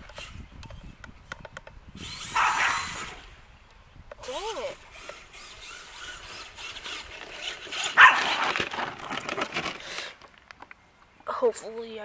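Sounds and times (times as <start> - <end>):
dog barking and growling: 2.4 - 2.9, 8.0 - 8.4.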